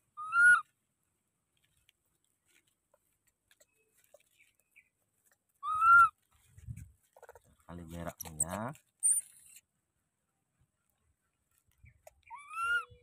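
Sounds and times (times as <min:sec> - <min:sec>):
infant macaque high-pitched call: 0:00.2 - 0:00.6, 0:05.6 - 0:06.1, 0:12.3 - 0:13.0.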